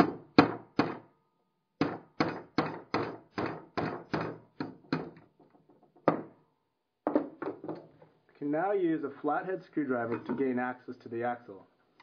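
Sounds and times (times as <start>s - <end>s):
hammer tapping a nail: 1.8s - 5.2s.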